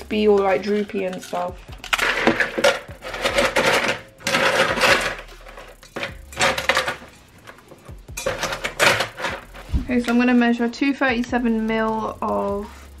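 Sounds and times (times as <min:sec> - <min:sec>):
ice cubes clattering in a bowl: 0:00.1 - 0:07.2, 0:08.2 - 0:09.7.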